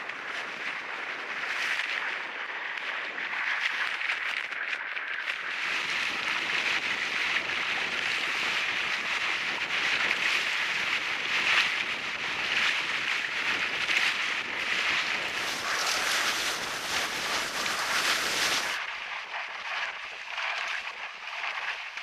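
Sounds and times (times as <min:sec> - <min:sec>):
wind and water rushing: 0:07.3 - 0:19.3
spray crackle: 0:14.1 - 0:18.8.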